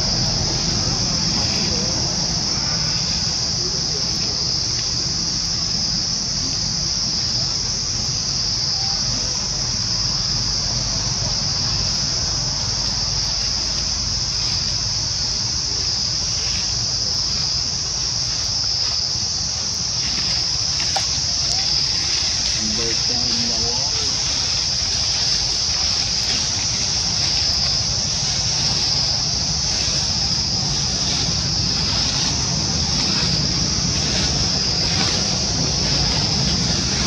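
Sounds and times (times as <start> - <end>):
high-pitched insect drone: 0.0 - 37.0.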